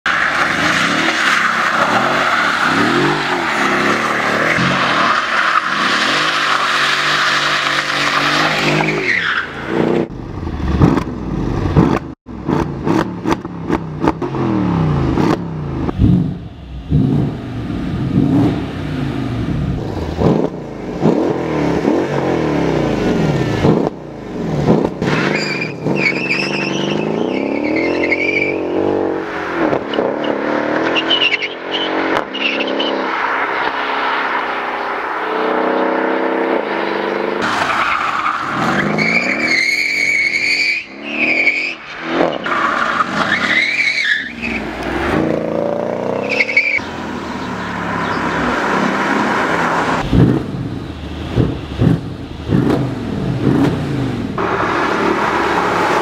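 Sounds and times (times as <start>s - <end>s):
car engine revving: 0.3s - 56.0s
tyres squealing: 25.1s - 28.7s, 37.4s - 44.8s, 46.0s - 50.0s.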